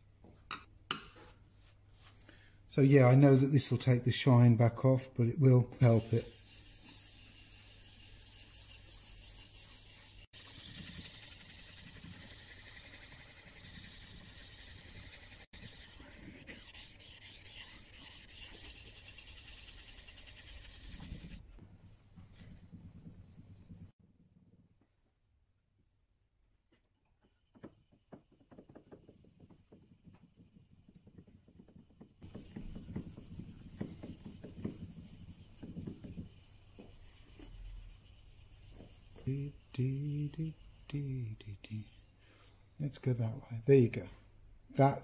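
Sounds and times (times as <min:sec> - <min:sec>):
chisel scraping on waterstone: 0:05.8 - 0:21.4.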